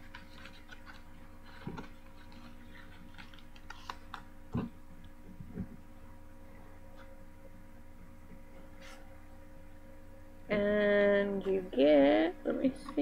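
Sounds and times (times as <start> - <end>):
cardstock clicks and rustles: 0.0 - 4.2.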